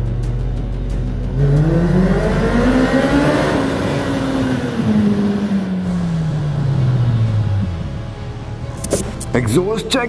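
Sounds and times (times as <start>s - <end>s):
motorcycle engine revving: 1.2s - 7.8s.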